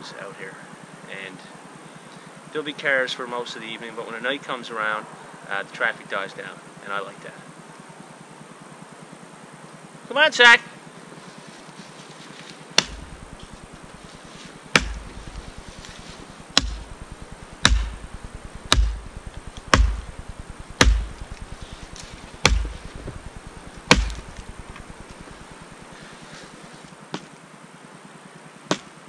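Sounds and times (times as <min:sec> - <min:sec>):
axe chopping into tree: 0:12.8 - 0:13.3, 0:14.7 - 0:15.1, 0:15.8 - 0:17.0, 0:17.6 - 0:22.9, 0:23.8 - 0:24.7, 0:27.1 - 0:27.3, 0:28.7 - 0:28.9.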